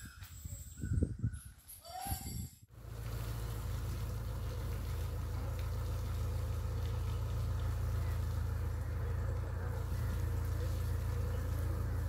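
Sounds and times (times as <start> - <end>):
engine idling hum: 2.7 - 12.0.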